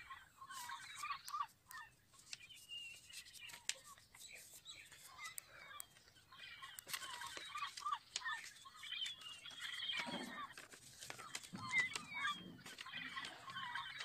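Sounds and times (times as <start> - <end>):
birds chirping: 0.0 - 14.0
paper rustling and crinkling: 0.5 - 14.0.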